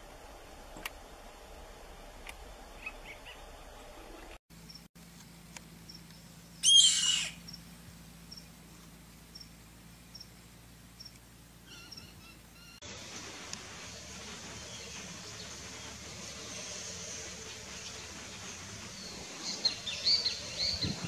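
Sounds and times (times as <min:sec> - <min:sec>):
bird of prey screaming: 0:06.6 - 0:07.4.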